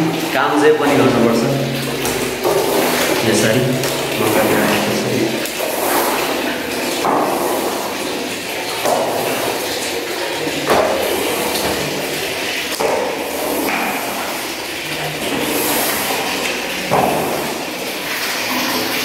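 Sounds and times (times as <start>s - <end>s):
squeegee scraping wet tiles: 2.0s - 7.9s.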